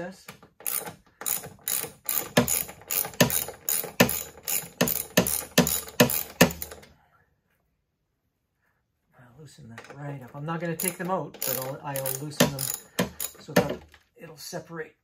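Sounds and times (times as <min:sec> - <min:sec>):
ratchet wrench clicking: 0:00.6 - 0:06.8, 0:10.8 - 0:13.6.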